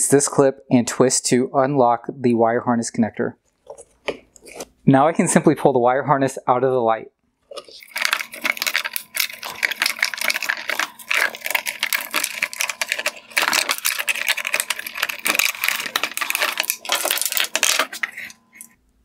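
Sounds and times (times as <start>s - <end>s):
wires scraping plastic housing: 7.4s - 18.8s.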